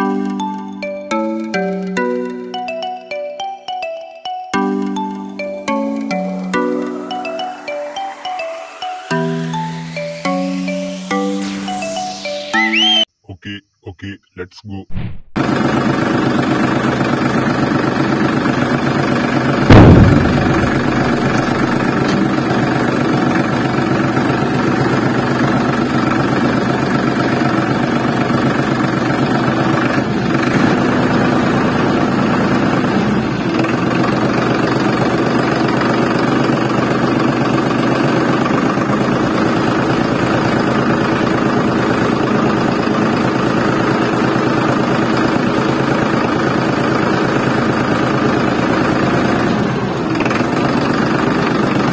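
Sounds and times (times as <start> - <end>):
loud sudden thump: 14.9 - 15.4, 19.7 - 22.4
small tractor engine running: 15.4 - 51.9.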